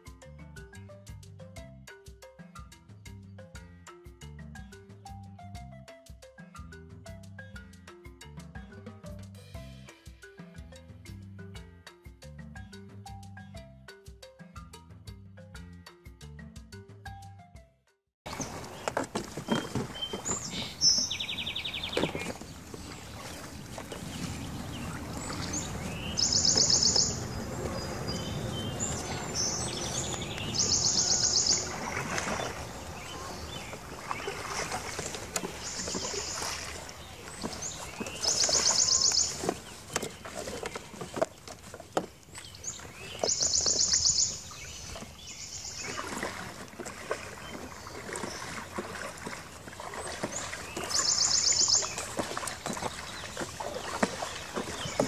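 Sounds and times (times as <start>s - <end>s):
rustling and scraping on plastic hull: 18.3s - 25.8s, 33.5s - 43.8s, 51.8s - 55.0s.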